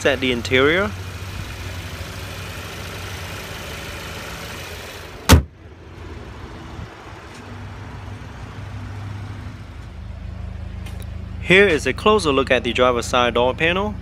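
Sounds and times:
car engine idling: 0:00.0 - 0:14.0
car hood slamming shut: 0:05.2 - 0:05.6.

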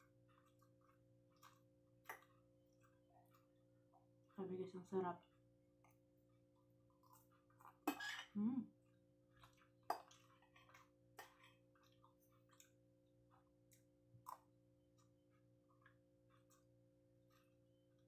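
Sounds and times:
mouth clicks and chewing: 0:00.0 - 0:04.4, 0:08.8 - 0:18.0.

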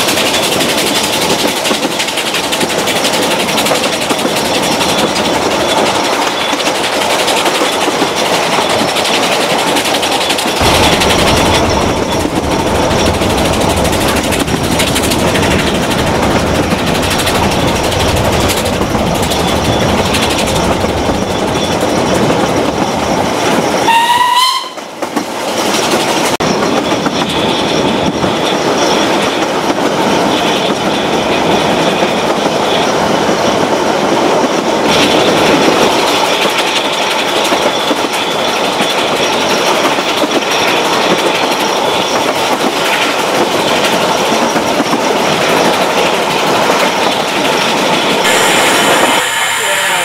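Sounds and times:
train wheels rumbling on rails: 0:00.0 - 0:50.0
rushing air: 0:10.5 - 0:23.0, 0:48.2 - 0:50.0
steam locomotive whistle: 0:23.8 - 0:24.9, 0:48.2 - 0:50.0.

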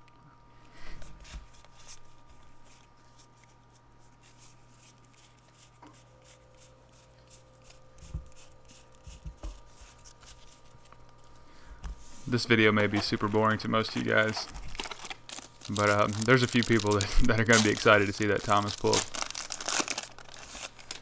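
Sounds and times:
cards flicking and rustling: 0:12.7 - 0:21.0.

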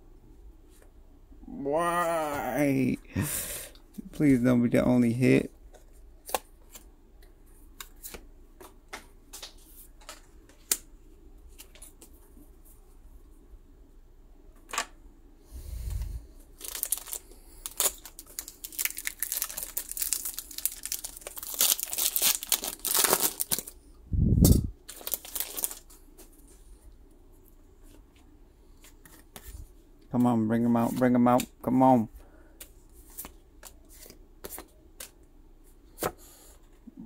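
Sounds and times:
foil wrapper crackling: 0:16.6 - 0:23.8, 0:24.9 - 0:26.0.

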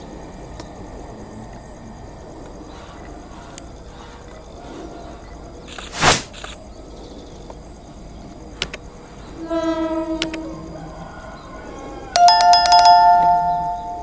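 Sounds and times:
clicks: 0:08.6 - 0:08.8
locomotive horn: 0:09.4 - 0:11.1
bright two-tone ringing: 0:12.2 - 0:14.0.

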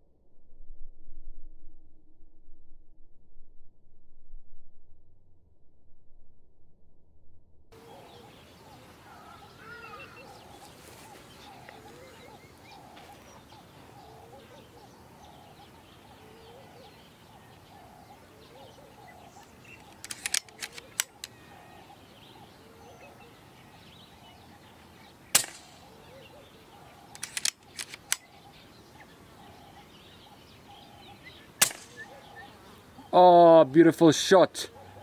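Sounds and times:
bird calling: 0:07.8 - 0:35.0
quick clicks: 0:19.6 - 0:21.4, 0:25.4 - 0:25.8, 0:27.1 - 0:28.3, 0:31.6 - 0:32.1
air rifle shot: 0:25.3 - 0:25.9, 0:31.6 - 0:32.1.

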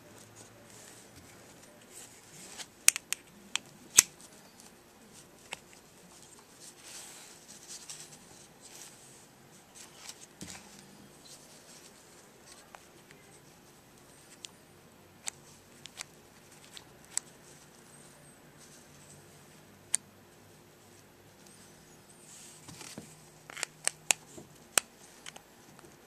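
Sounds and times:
soft rustling: 0:00.0 - 0:02.8, 0:04.1 - 0:14.4, 0:20.3 - 0:23.6.

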